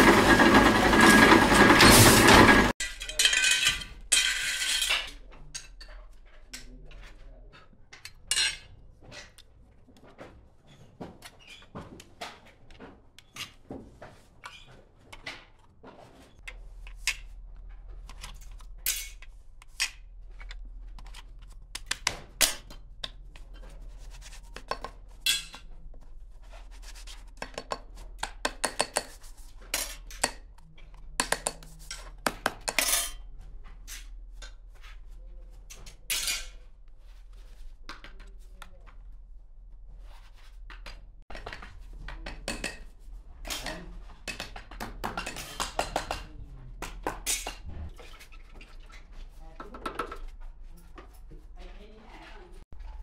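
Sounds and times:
small metal parts clinking: 2.8s - 5.8s.

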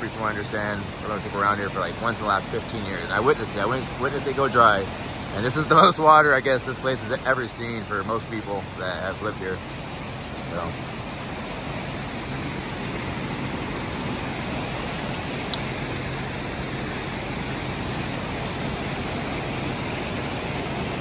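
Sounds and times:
floodwater rushing down creek: 0.0s - 21.0s.

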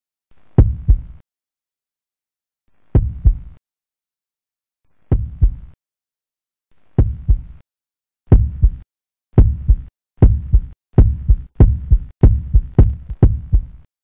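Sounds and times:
heartbeat double thumps: 0.6s - 1.2s, 3.0s - 3.6s, 5.1s - 5.8s, 7.0s - 7.6s, 8.3s - 8.8s, 9.4s - 13.9s.

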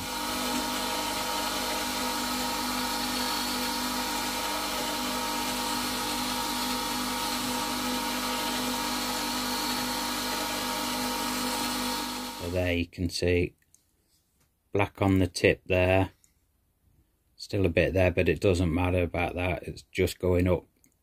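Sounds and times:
gouge grinding on stone wheel: 0.0s - 12.4s
whetstone grinder motor hum: 0.0s - 12.6s.

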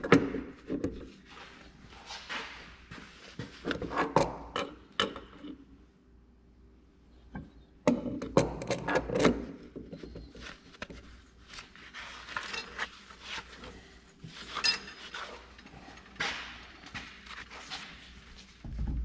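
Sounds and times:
metal clanks and scrapes: 12.2s - 12.9s, 14.3s - 16.6s.

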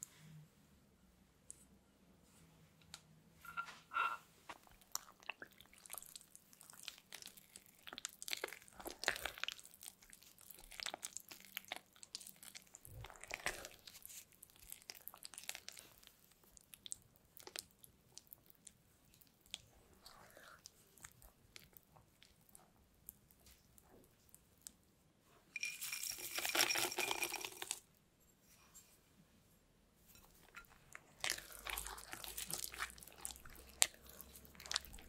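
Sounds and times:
spatula squelching and scraping batter: 30.1s - 35.0s.

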